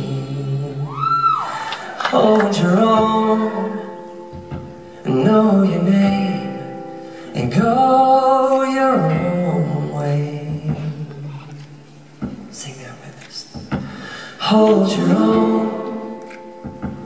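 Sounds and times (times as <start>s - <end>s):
man singing long held notes: 0.0s - 4.0s, 14.3s - 16.3s
acoustic guitar: 0.0s - 17.0s.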